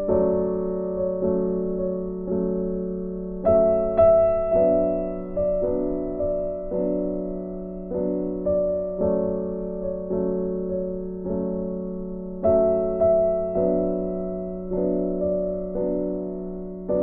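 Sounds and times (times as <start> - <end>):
slow gentle piano chords: 0.0 - 17.0.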